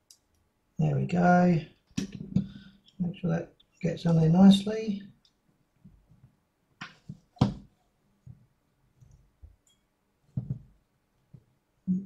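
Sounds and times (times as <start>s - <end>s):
soft knocks on metal frame: 10.4s - 10.7s.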